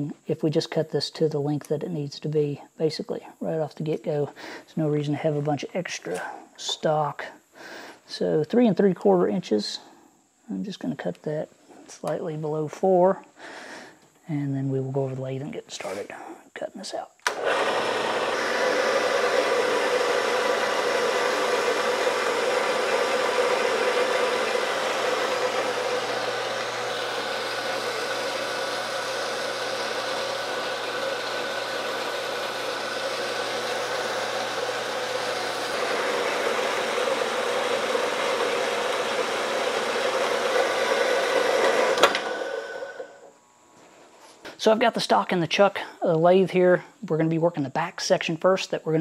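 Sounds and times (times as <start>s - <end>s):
bandsaw cutting metal: 17.3s - 43.2s.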